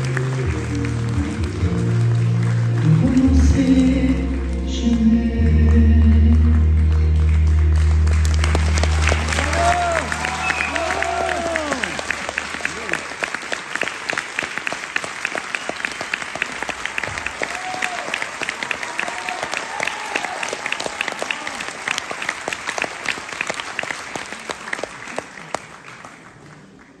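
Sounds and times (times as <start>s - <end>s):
audience applauding: 0.0s - 5.0s, 5.6s - 27.0s.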